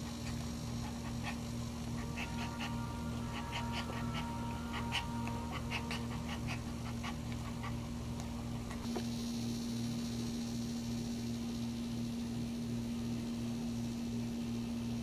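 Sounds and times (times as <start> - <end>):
dog panting: 0.0 - 8.0
steady low hum: 0.0 - 15.0.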